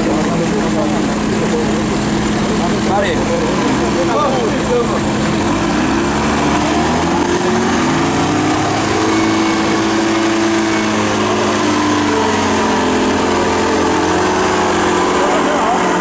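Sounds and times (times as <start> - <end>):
truck engines running: 0.0 - 16.0.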